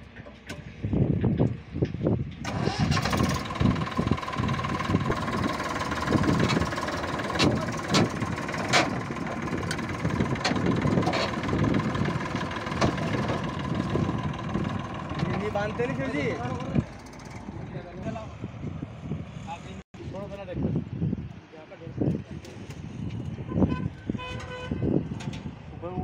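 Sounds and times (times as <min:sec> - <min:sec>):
tractor diesel engine running: 0:00.0 - 0:18.9.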